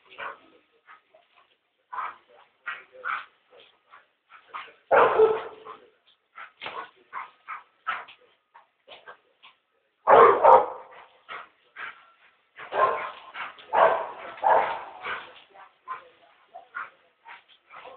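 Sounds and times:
dog barking and yipping: 0:04.6 - 0:05.8, 0:10.1 - 0:11.0, 0:12.6 - 0:15.3.

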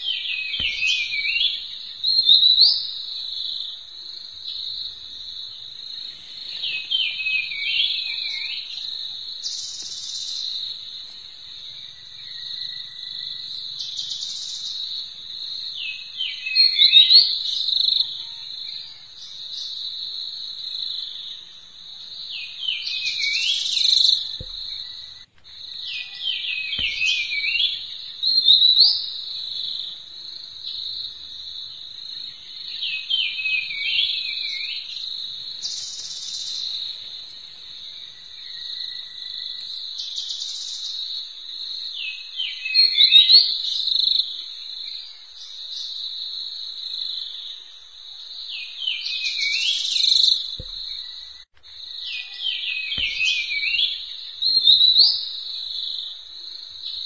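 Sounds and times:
hands rustling dry grass: 0:04.6 - 0:15.9, 0:19.4 - 0:32.2, 0:35.1 - 0:39.6
high insect trilling: 0:19.2 - 0:32.6, 0:35.1 - 0:39.7.

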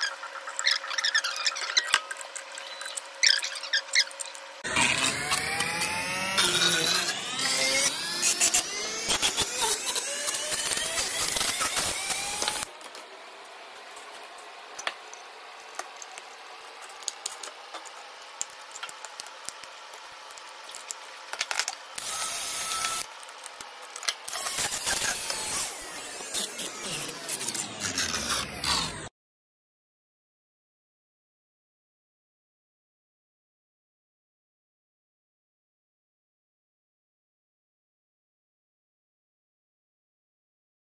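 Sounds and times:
rotary tool grinding plastic: 0:00.5 - 0:13.0, 0:15.7 - 0:29.1.

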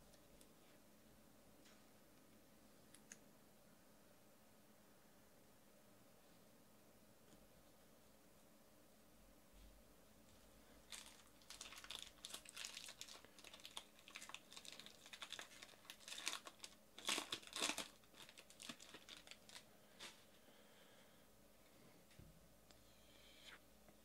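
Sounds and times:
foil wrapper crinkling and tearing: 0:10.9 - 0:20.2.

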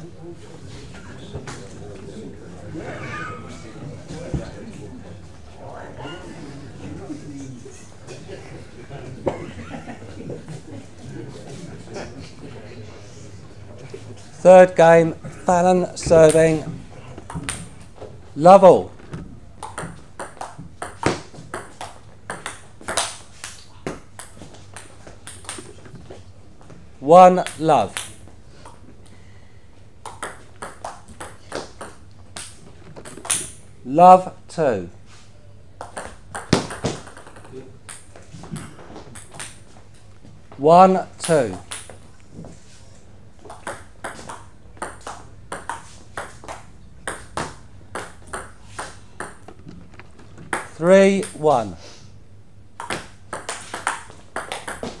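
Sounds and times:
ping-pong ball clicking: 0:19.6 - 0:23.2, 0:30.0 - 0:33.4, 0:35.8 - 0:38.6, 0:43.5 - 0:49.4, 0:52.8 - 0:55.0
table tennis ball clicking: 0:43.5 - 0:49.5, 0:52.8 - 0:55.0.

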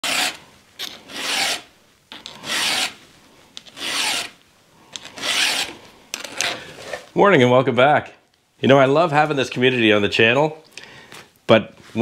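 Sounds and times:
hand file rasping on chainsaw chain: 0:00.0 - 0:01.6, 0:02.4 - 0:03.0, 0:03.8 - 0:04.3, 0:05.2 - 0:05.8.

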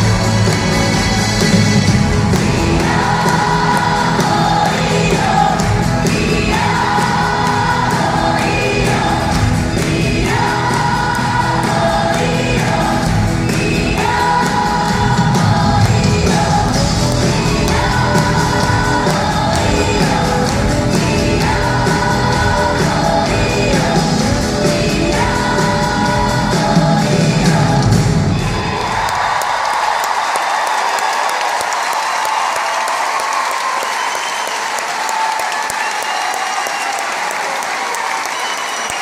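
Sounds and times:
live rock band playing: 0:00.0 - 0:28.4
crowd singing together: 0:00.0 - 0:29.9.

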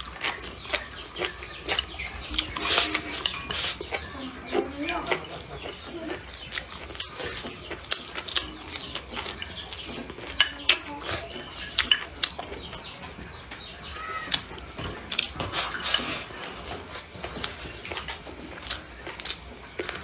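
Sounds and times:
chopsticks clicking against bowl: 0:00.0 - 0:11.1, 0:11.7 - 0:12.6
chewing: 0:00.0 - 0:20.0.

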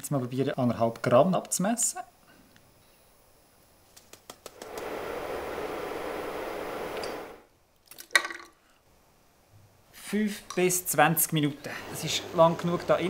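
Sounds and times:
steady hiss: 0:01.0 - 0:07.6.

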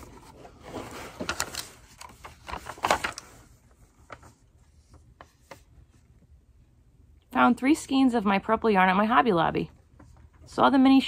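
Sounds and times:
paper rustling: 0:00.0 - 0:06.0.

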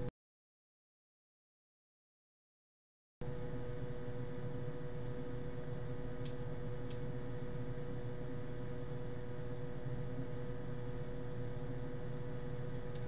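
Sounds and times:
electrical hum: 0:03.2 - 0:13.0
low whir: 0:03.2 - 0:13.0.

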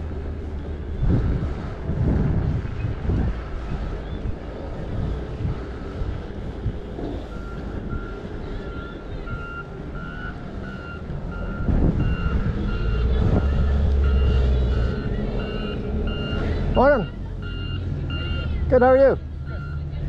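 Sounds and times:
wind on microphone: 0:00.0 - 0:16.8
vehicle reversing alarm beeping: 0:06.3 - 0:20.0.

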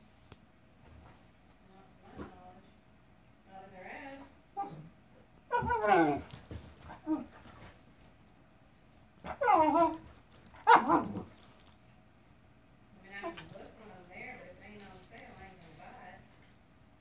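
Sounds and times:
puppy barking: 0:10.6 - 0:11.3.

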